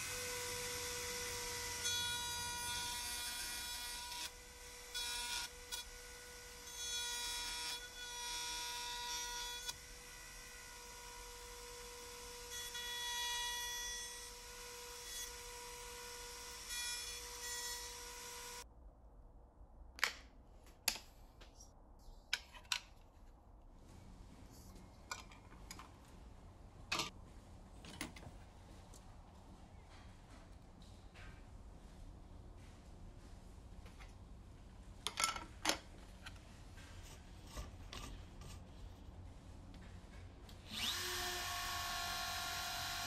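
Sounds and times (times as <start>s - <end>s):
router bit cutting wood: 0.0s - 18.6s, 40.7s - 43.0s
knocks and clicks of handling: 27.8s - 28.4s
router whining: 40.6s - 43.0s.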